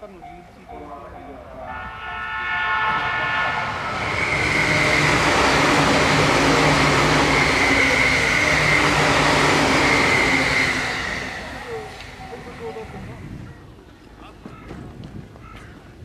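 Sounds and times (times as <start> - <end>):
train passing at speed: 0.0 - 14.0
train horn: 1.6 - 12.8.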